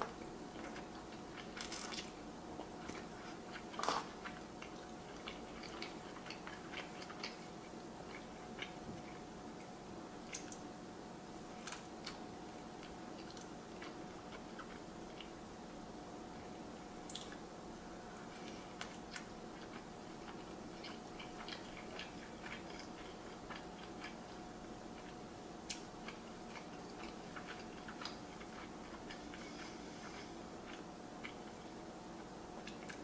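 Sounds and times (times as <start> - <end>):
person chewing: 0.0 - 9.3, 11.6 - 15.3, 18.3 - 31.6.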